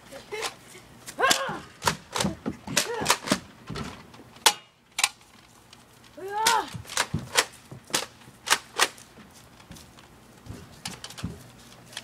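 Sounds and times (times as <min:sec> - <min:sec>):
person shouting: 0:01.2 - 0:01.7, 0:02.8 - 0:03.2, 0:06.2 - 0:06.8.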